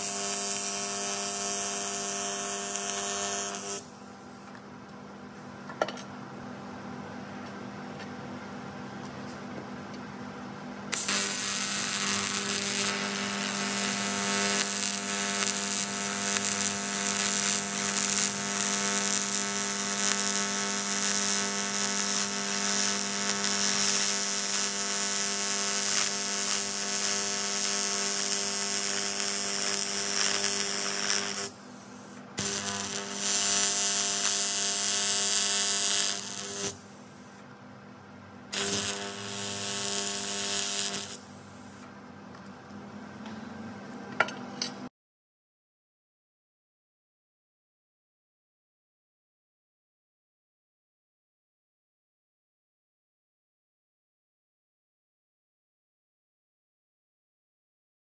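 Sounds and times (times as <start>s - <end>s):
welding arc buzzing hiss: 0.0s - 4.6s, 10.9s - 37.5s, 38.5s - 41.9s.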